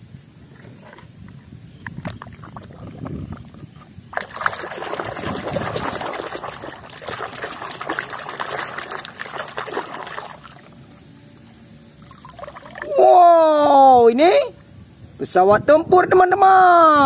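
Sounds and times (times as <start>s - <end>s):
water splashing in plastic tub: 4.1s - 10.8s.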